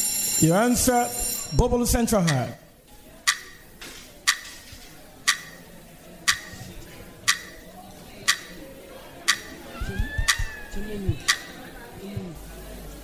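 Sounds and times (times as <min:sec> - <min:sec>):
timer ticking with ringing tone: 0:00.0 - 0:03.7, 0:04.3 - 0:04.6, 0:05.2 - 0:06.7, 0:07.3 - 0:07.7, 0:08.3 - 0:08.6, 0:09.3 - 0:09.6.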